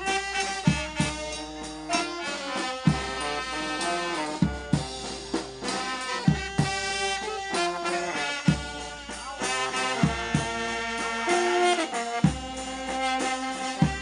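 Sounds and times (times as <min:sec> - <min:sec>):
brass band playing: 0:00.0 - 0:14.0
bass drum beats: 0:04.4 - 0:07.5, 0:08.4 - 0:10.9, 0:12.2 - 0:14.0.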